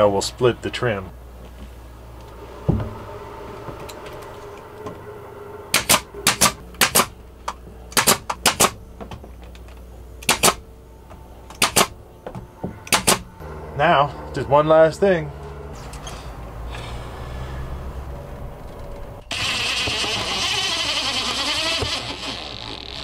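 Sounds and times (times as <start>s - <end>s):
faint steady hum: 0.0s - 20.3s
pin nailer snapping shots: 5.8s - 7.1s, 7.9s - 8.8s, 10.2s - 10.6s, 11.6s - 11.9s, 12.9s - 13.2s.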